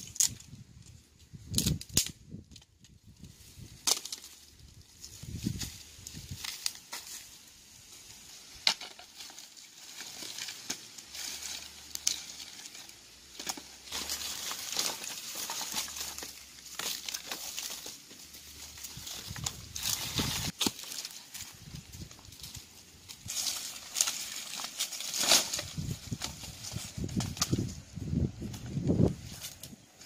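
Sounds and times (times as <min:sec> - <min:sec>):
sharp branch crack: 0:00.0 - 0:00.9, 0:01.5 - 0:07.3, 0:08.5 - 0:27.8
dry branches crackling and scraping: 0:00.0 - 0:30.0.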